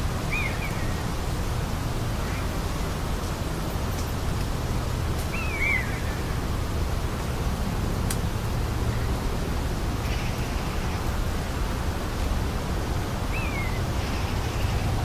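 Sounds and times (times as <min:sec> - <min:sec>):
rural outdoor rumble and hiss: 0:00.0 - 0:15.0.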